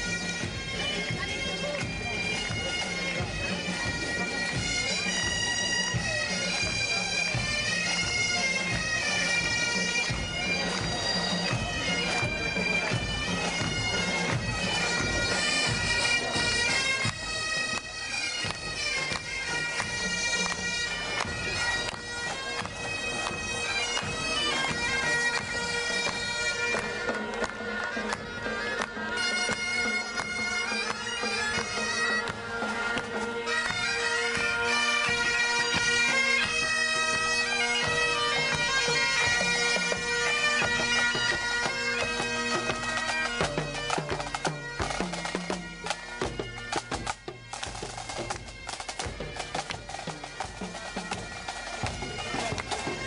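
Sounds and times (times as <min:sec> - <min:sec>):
bagpipes with drones: 0:00.0 - 0:53.0
low drum beats: 0:43.4 - 0:53.0.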